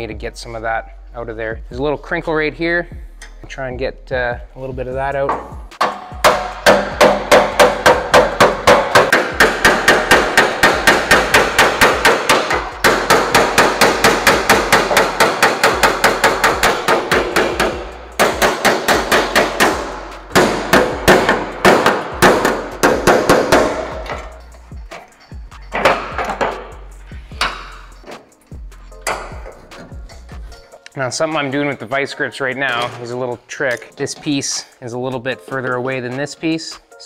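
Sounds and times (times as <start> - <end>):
hammer striking sheet metal: 5.3 - 28.3, 28.9 - 30.7.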